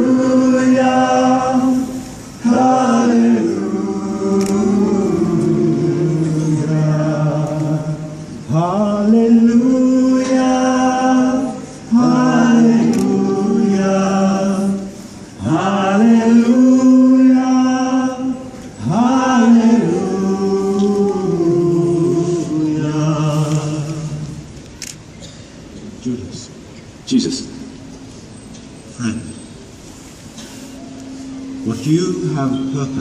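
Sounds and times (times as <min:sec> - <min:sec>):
group singing a slow hymn: 0:00.0 - 0:24.6.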